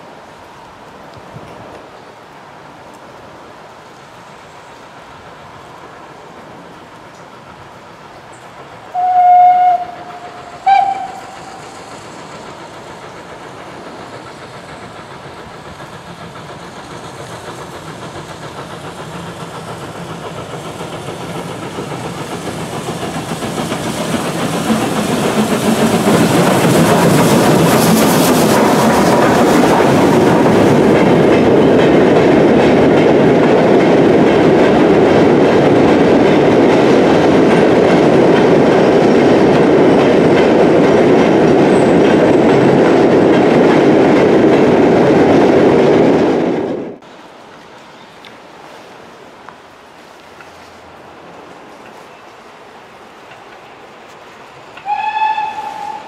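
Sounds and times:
train rumbling past: 0:00.0 - 0:56.0
steam locomotive whistle: 0:08.9 - 0:11.7, 0:54.8 - 0:56.0
wagon wheels clickety-clack: 0:09.9 - 0:44.3.

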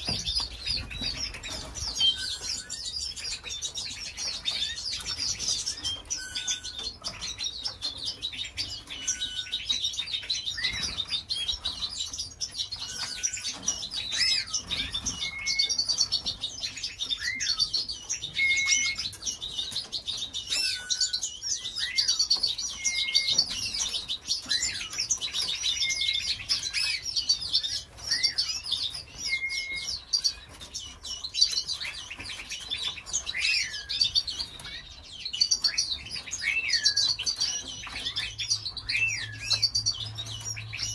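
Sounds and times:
canaries chirping and twittering: 0:00.0 - 0:40.9
whistled bird notes: 0:14.1 - 0:16.0, 0:17.1 - 0:19.2, 0:27.6 - 0:30.4.

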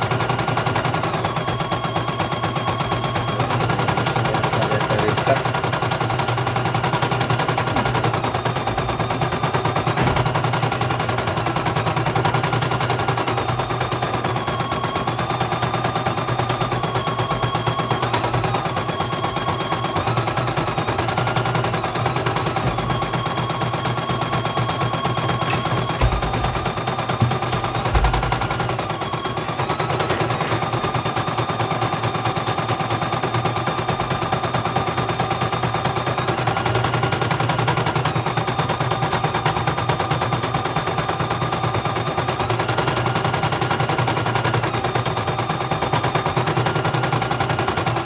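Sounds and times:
thin machine whine: 0:00.0 - 0:48.0.

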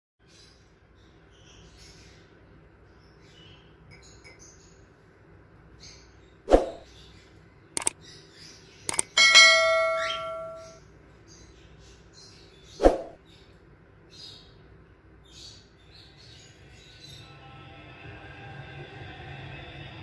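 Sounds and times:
mouse clicks: 0:08.9 - 0:09.2
sharp click: 0:08.9 - 0:09.2
bell ding: 0:09.2 - 0:10.8.

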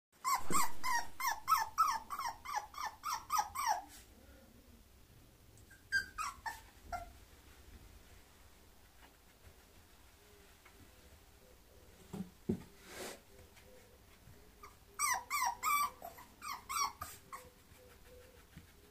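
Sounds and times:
puppy whimpering: 0:00.2 - 0:03.9, 0:05.6 - 0:07.2, 0:14.6 - 0:18.9.

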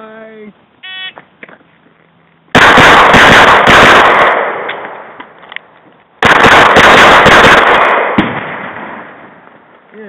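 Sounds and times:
pistol shots: 0:02.5 - 0:05.2, 0:06.2 - 0:09.4.

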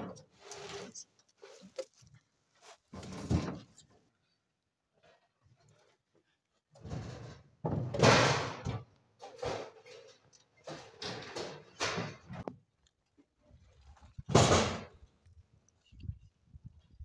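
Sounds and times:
firewood clattering into trailer: 0:06.8 - 0:12.5, 0:14.3 - 0:14.9.

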